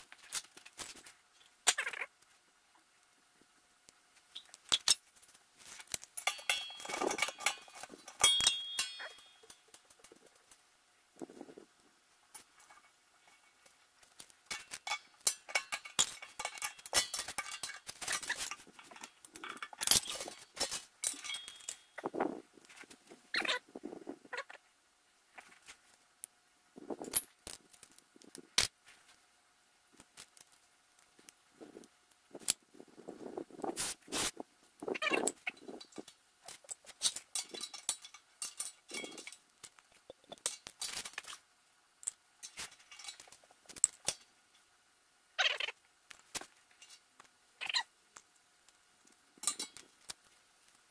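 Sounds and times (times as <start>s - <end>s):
rustling and handling noise: 0.0s - 50.9s
metal fittings clinking: 5.7s - 9.9s, 14.4s - 22.1s, 35.2s - 41.4s, 42.0s - 44.2s, 49.4s - 50.3s.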